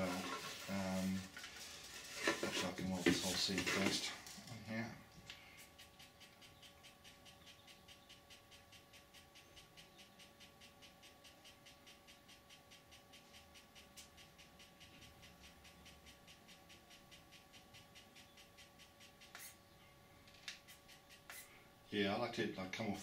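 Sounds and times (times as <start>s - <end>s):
thin steady whine: 0.0s - 23.0s
pen feed motor ticking: 5.3s - 19.6s, 20.4s - 21.6s.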